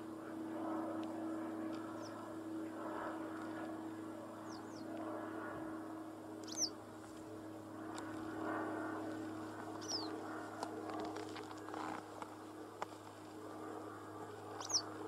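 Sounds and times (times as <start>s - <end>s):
steady low hum: 0.0s - 15.0s
bird giving thin high calls: 14.6s - 14.9s.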